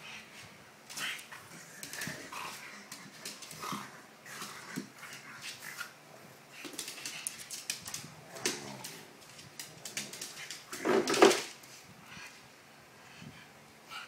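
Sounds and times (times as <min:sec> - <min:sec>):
dogs scuffling and clicking: 0:00.9 - 0:11.8.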